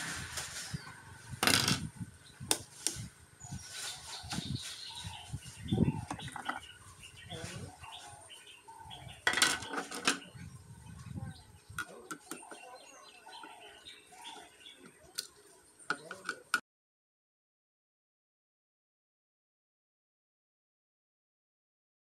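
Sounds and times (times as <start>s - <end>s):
faint birds chirping: 0.4s - 16.5s.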